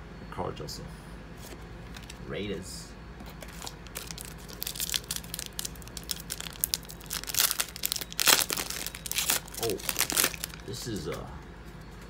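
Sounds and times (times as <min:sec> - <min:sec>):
foil card pack crinkling: 0:01.9 - 0:02.2, 0:03.4 - 0:11.2.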